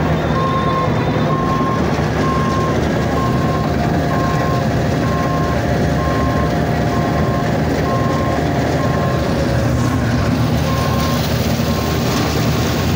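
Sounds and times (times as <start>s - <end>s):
loader engine running: 0.0s - 12.9s
reversing alarm beeping: 0.1s - 12.1s.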